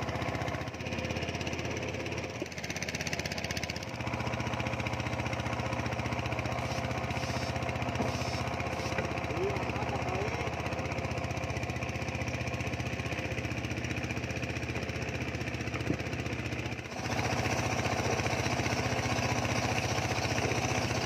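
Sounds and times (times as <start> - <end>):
boat engine chugging: 0.0 - 21.0.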